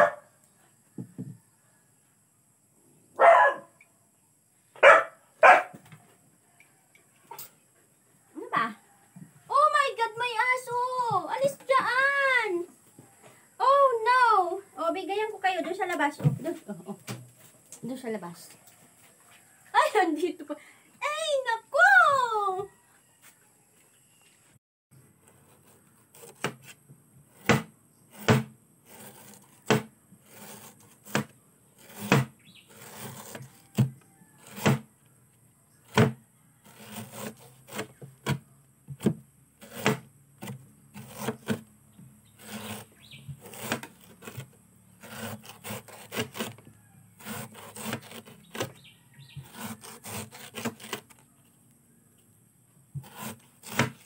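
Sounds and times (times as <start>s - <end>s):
knife slicing on hard table: 27.4s - 33.6s, 34.4s - 34.8s, 39.0s - 41.6s, 42.4s - 46.5s, 53.0s - 54.0s.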